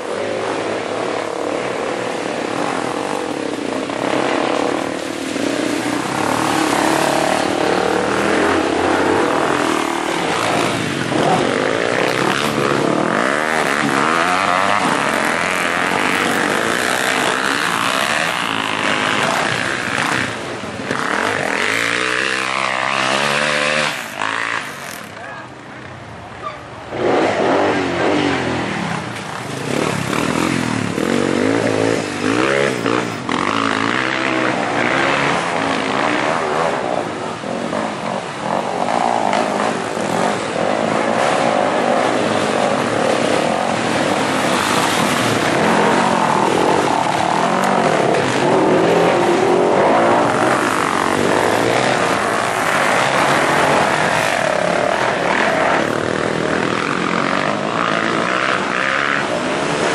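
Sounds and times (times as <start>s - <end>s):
dirt bike engines revving: 0.0s - 59.9s.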